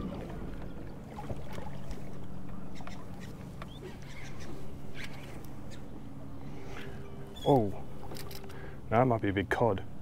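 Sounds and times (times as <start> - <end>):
water splashes: 0.0 - 2.3
low steady hum: 0.0 - 10.0.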